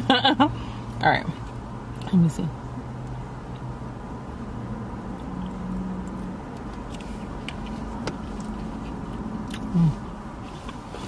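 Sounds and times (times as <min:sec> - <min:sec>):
crunchy chewing: 0:05.1 - 0:11.0.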